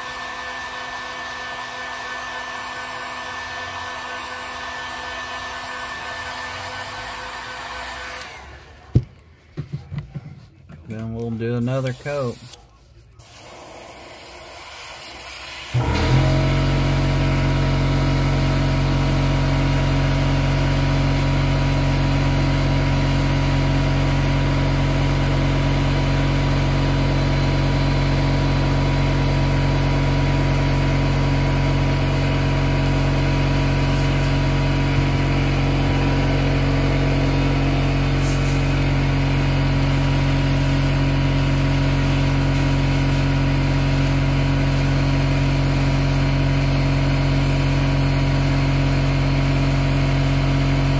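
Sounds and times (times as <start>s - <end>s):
air compressor running: 0.0s - 50.9s
airbrush spraying: 11.5s - 15.8s, 32.8s - 34.7s, 38.1s - 39.0s, 39.7s - 50.4s.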